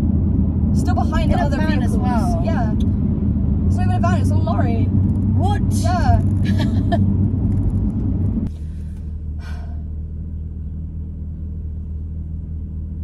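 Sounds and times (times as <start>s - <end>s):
car engine idling: 0.0s - 13.0s
road and engine noise in car: 0.0s - 13.0s.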